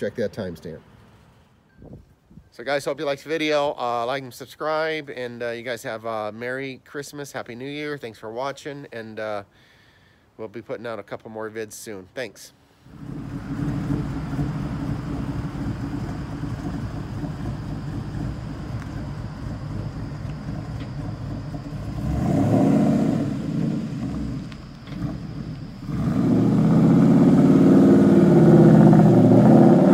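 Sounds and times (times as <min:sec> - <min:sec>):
car engine revving: 0:12.9 - 0:29.9.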